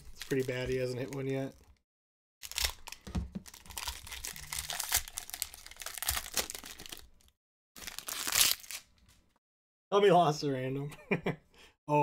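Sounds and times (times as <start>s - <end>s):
foil wrapper crinkling and tearing: 0.0s - 1.5s, 2.4s - 9.0s.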